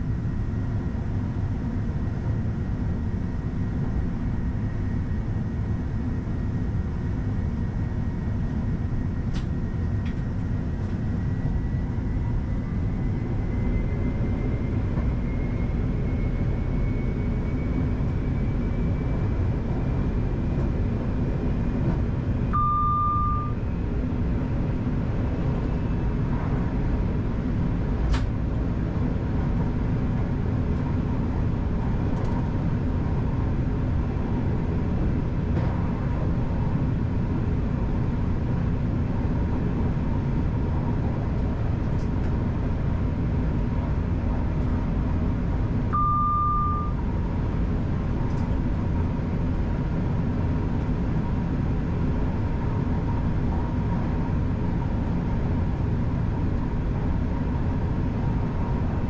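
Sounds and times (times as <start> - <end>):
train rumbling on rails: 0.0 - 59.0
short electronic beep: 22.5 - 23.6, 45.9 - 47.0.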